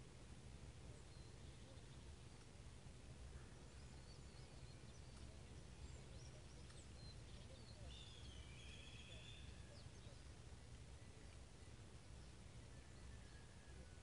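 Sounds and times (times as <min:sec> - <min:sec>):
low steady rumble: 0:00.0 - 0:14.0
faint bird chirps: 0:00.9 - 0:02.4, 0:03.3 - 0:14.0.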